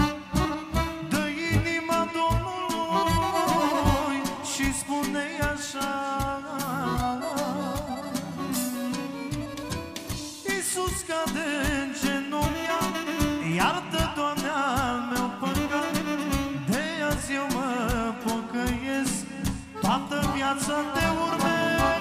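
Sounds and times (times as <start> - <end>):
saxophone melody: 0.0 - 1.8, 2.8 - 4.4, 6.8 - 10.2, 12.4 - 14.0, 15.4 - 17.1, 19.8 - 22.0
electronic keyboards: 0.0 - 4.8, 6.2 - 10.4, 19.6 - 22.0
drum beat: 6.6 - 11.8, 17.9 - 22.0.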